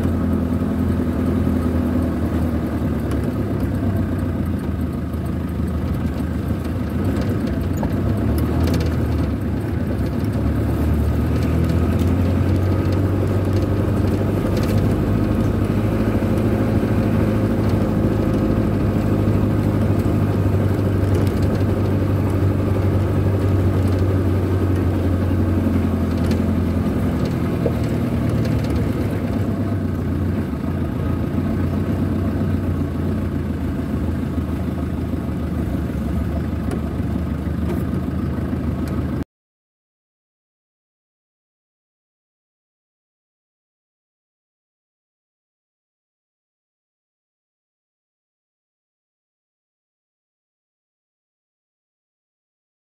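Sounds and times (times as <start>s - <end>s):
vehicle engine droning: 0.0s - 39.2s.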